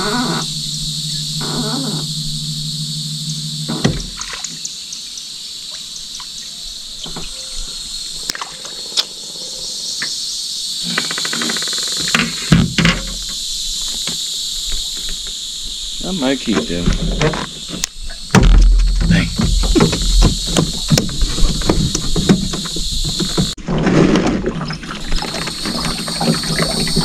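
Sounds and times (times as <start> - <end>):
knocks and thumps in boat: 0.0 - 4.6, 10.9 - 13.4, 16.5 - 27.0
low steady hum: 0.0 - 5.0
high-pitched insect chorus: 0.0 - 23.6, 24.5 - 27.0.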